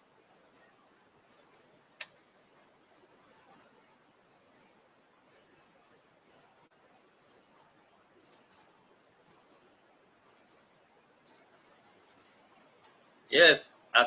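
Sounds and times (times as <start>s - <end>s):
high-pitched double beep: 0.3s - 0.7s, 1.3s - 1.7s, 2.3s - 2.7s, 3.3s - 3.7s, 4.3s - 5.7s, 6.3s - 6.7s, 7.3s - 7.7s, 8.3s - 8.7s, 9.3s - 9.7s, 10.3s - 10.7s, 11.3s - 12.7s.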